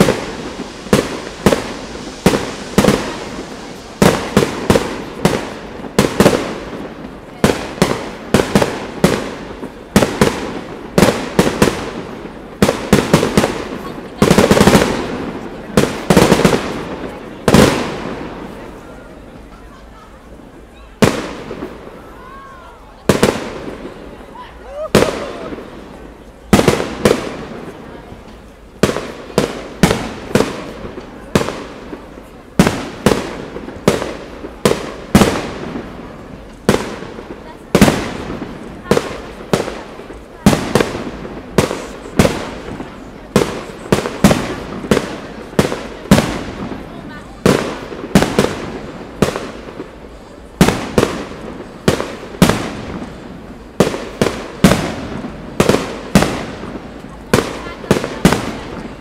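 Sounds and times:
fireworks bursting with echo: 0.0s - 59.0s.

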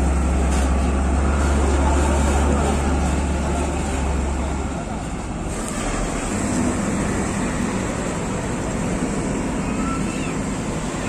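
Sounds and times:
diesel trucks rumbling: 0.0s - 11.0s
faint brief squeals: 9.6s - 10.4s.

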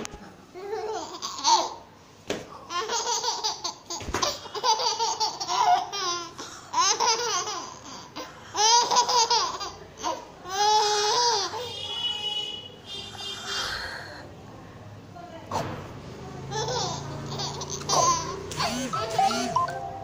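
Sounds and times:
baby laughing: 0.6s - 1.8s, 2.6s - 11.6s, 16.5s - 19.6s.

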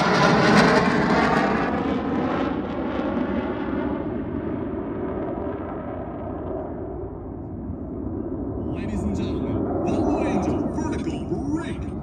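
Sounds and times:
jets passing by: 0.0s - 6.0s, 8.6s - 12.0s.

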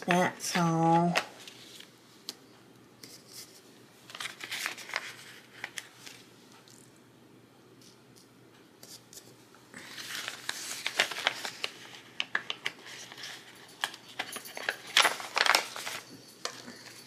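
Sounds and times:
paper pages rustling and crinkling: 0.5s - 1.9s, 3.0s - 6.3s, 8.9s - 17.0s.

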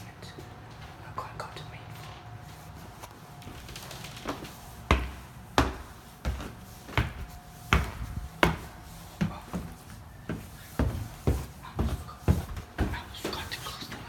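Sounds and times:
footsteps on wooden stairs: 3.4s - 14.0s.

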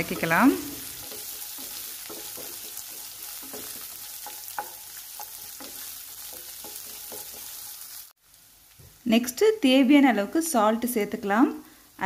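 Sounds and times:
spatula scraping a pan: 0.0s - 8.0s
onion sizzling in oil: 0.0s - 12.0s.

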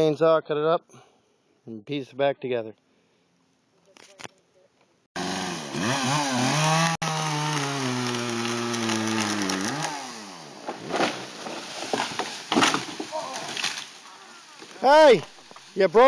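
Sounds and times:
chainsaw cutting tree trunk: 5.2s - 14.0s
tree cracking and thumping: 5.3s - 16.0s.

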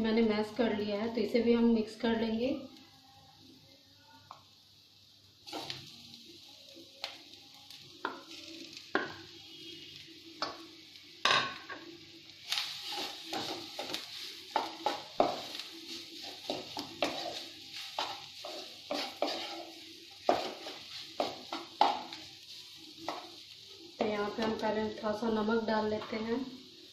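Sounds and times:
food sizzling in pan: 0.0s - 26.9s
wooden spatula tapping and scraping pan: 13.0s - 15.6s, 16.2s - 22.2s, 23.0s - 23.4s.

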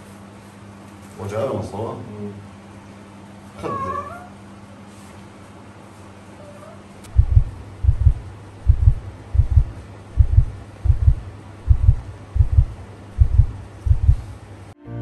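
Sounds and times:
heartbeat through stethoscope: 7.1s - 14.3s.

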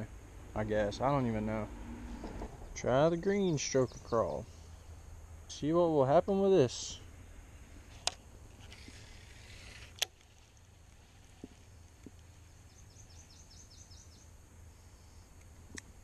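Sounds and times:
low background rumble: 0.0s - 16.0s
fishing line whirring off spool: 7.9s - 12.5s.

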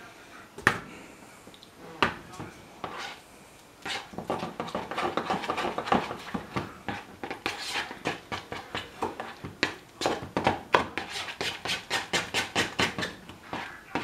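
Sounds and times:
fork mashing in a bowl: 2.3s - 3.2s, 3.8s - 14.0s.

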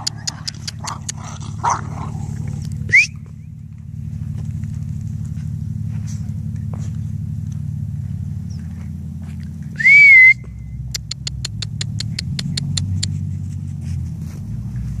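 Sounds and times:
sharp clicks: 0.0s - 1.2s, 10.9s - 13.1s
low rumble: 0.0s - 11.2s
rising whistle: 2.9s - 3.2s, 9.8s - 10.8s.

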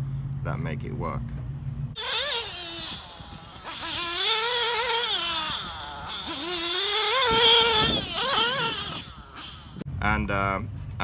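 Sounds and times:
model car engine revving: 2.0s - 9.8s.

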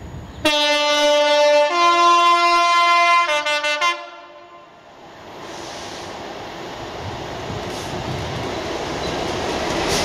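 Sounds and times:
two-tone locomotive air horn: 0.4s - 4.8s.

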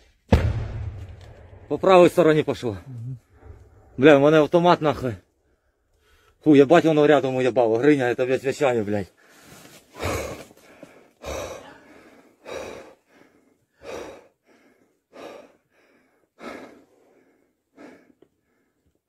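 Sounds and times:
man breathing hard and fast: 9.1s - 19.0s.

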